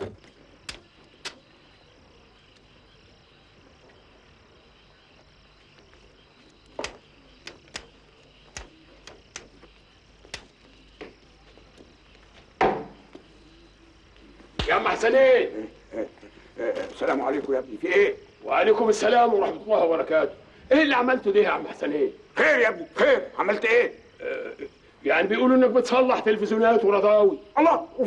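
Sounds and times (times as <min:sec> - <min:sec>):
crickets chirping: 0:00.0 - 0:28.0
sharp clicks and knocks: 0:06.7 - 0:07.9.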